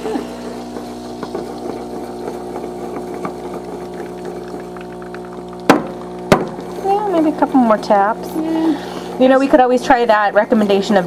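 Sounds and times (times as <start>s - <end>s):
steady mechanical hum: 0.0s - 11.0s
milk pitcher tapping on counter: 0.7s - 6.7s.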